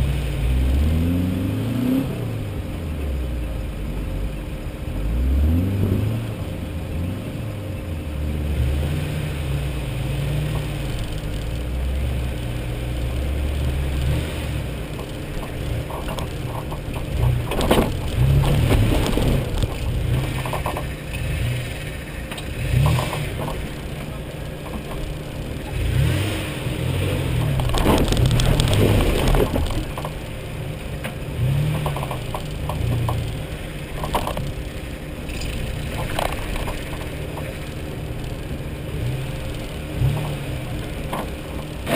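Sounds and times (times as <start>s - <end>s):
off-road engine crawling: 0.0s - 41.9s
vehicle knocking over rocks: 14.9s - 21.1s, 27.3s - 30.3s.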